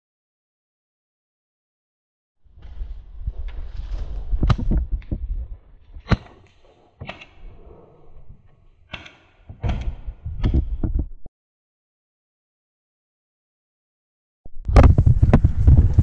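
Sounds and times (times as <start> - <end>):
microphone handling rumble: 2.5 - 6.1, 9.6 - 11.3, 14.5 - 16.0
paintballs hitting bunker: 6.0 - 7.4.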